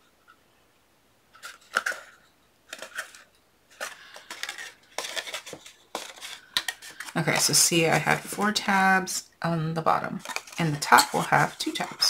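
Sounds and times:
cardboard box crinkling: 0:02.8 - 0:07.5.

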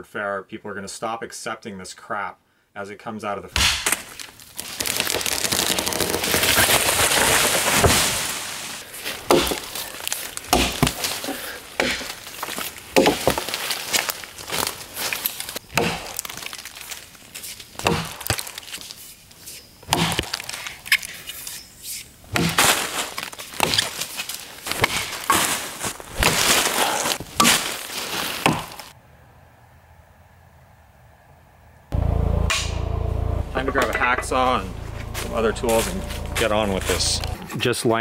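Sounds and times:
axe strikes into wood: 0:03.6 - 0:04.0, 0:09.3 - 0:09.7, 0:10.5 - 0:11.1, 0:11.8 - 0:12.2, 0:13.0 - 0:13.4, 0:15.7 - 0:16.2, 0:17.8 - 0:18.5, 0:19.9 - 0:20.4, 0:22.3 - 0:22.7, 0:24.8 - 0:25.4, 0:28.4 - 0:28.8, 0:32.5 - 0:32.8
tree crashing through branches: 0:03.6 - 0:18.9, 0:22.3 - 0:28.9.

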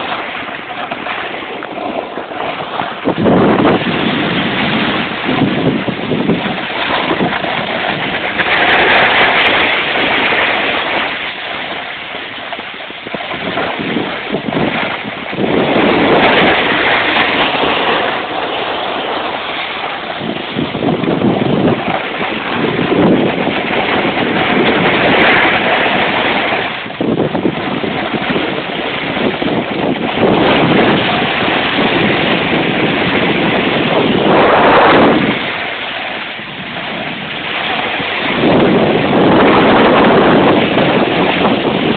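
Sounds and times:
snowboard scraping over snow: 0:00.0 - 0:41.9
wind on microphone: 0:00.0 - 0:41.9.

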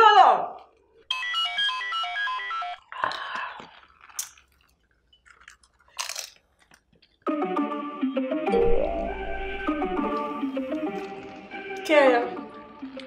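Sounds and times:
crunching and slurping: 0:02.9 - 0:07.3, 0:12.5 - 0:13.0
bright electronic notes: 0:08.2 - 0:10.8
mallet percussion music: 0:08.5 - 0:10.3.

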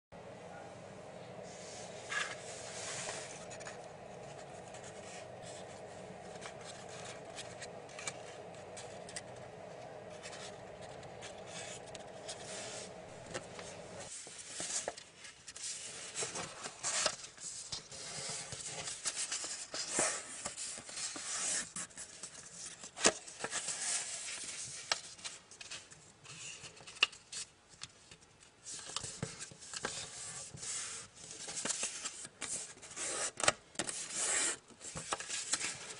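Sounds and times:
steady low hum: 0:00.2 - 0:14.4
paper rustling and creasing: 0:01.6 - 0:35.9.

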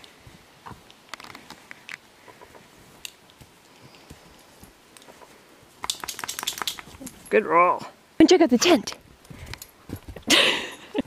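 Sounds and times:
crackling dry needles and twigs: 0:00.0 - 0:07.8.

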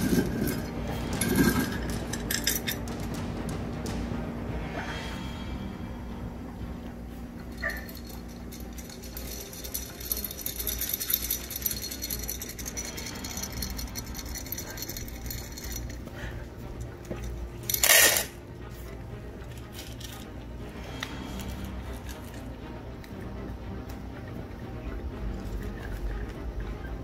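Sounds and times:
rattling and jingling: 0:00.0 - 0:04.0, 0:07.3 - 0:18.4.

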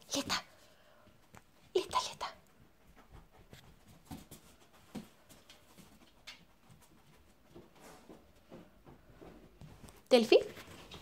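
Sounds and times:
dog claws clicking on floor: 0:03.5 - 0:07.7.

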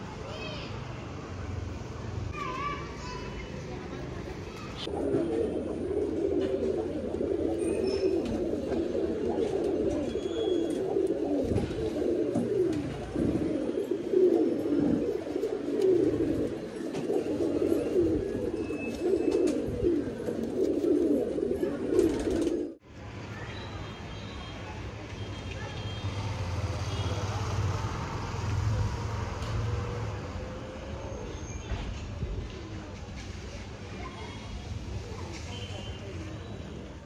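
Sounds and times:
pigeons cooing: 0:04.8 - 0:22.8.

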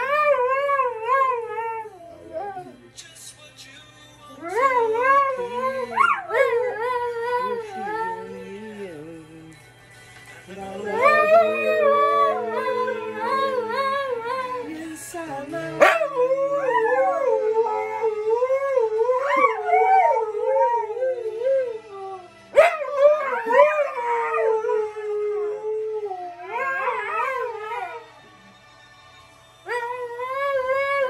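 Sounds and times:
dogs howling: 0:00.0 - 0:02.8, 0:04.4 - 0:08.5, 0:10.6 - 0:14.7, 0:15.6 - 0:28.1, 0:29.7 - 0:31.0
music: 0:00.0 - 0:31.0.

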